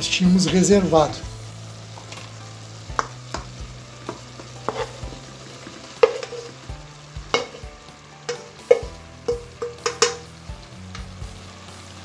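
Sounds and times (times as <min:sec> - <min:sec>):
food sizzling in a metal pot: 0:00.0 - 0:12.0
sharp knocks against a pot: 0:08.3 - 0:10.2.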